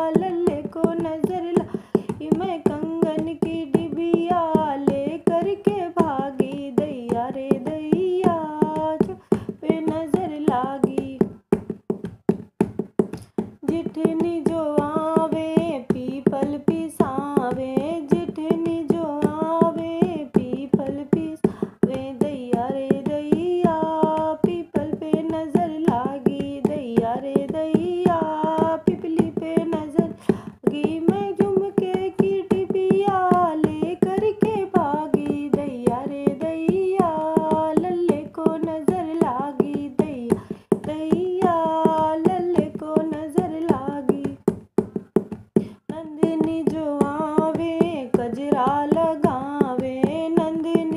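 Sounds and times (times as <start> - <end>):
person singing folk song: 0.0 - 11.6, 13.2 - 50.9
hand drum beating: 0.0 - 50.9.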